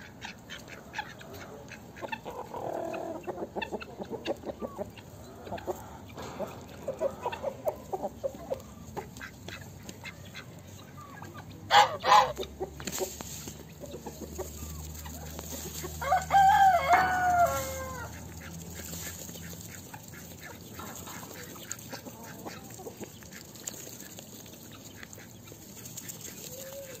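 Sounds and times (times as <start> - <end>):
hens clucking softly: 0.0 - 27.0
rooster crowing: 16.0 - 18.1.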